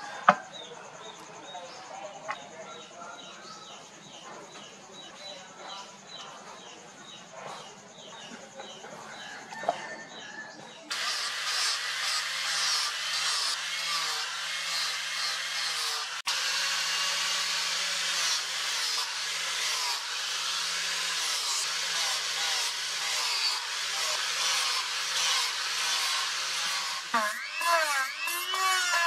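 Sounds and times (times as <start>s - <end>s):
angle grinder sanding wood: 10.9s - 29.0s.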